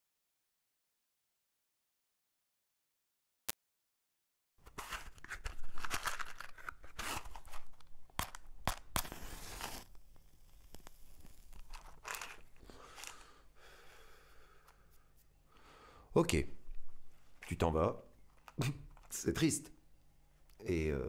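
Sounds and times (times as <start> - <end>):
rustling and crackling: 4.6 - 13.3, 16.6 - 19.4.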